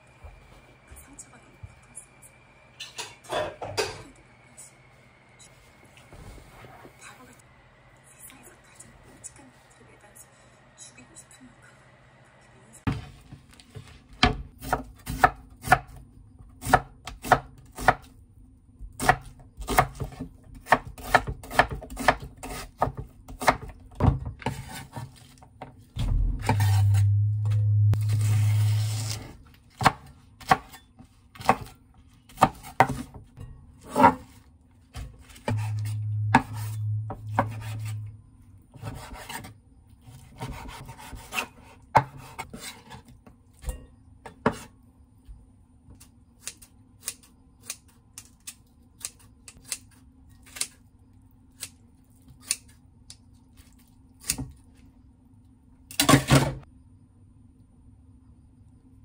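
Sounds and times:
low hum: 26.0s - 29.2s, 35.5s - 38.7s.

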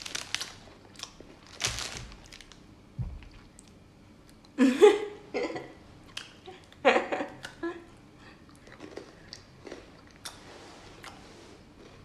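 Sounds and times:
person chewing crisp snack: 0.0s - 2.5s, 8.5s - 10.4s
soft thump: 3.0s - 3.3s.

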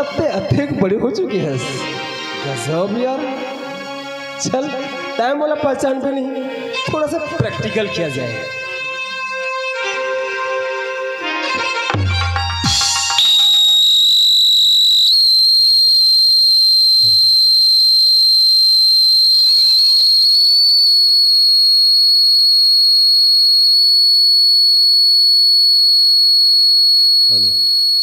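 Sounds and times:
high-pitched whistling tone: 12.6s - 28.0s.

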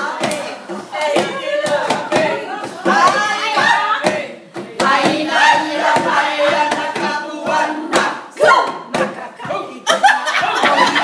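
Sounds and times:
group singing: 0.0s - 11.0s
hands clapping: 0.2s - 2.3s.

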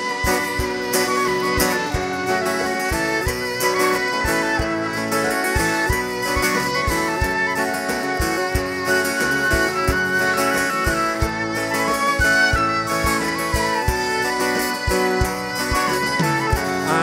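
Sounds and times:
accordion: 0.0s - 17.0s
acoustic guitar: 0.0s - 17.0s
violin melody: 0.0s - 17.0s
steady drum beat: 11.2s - 17.0s.

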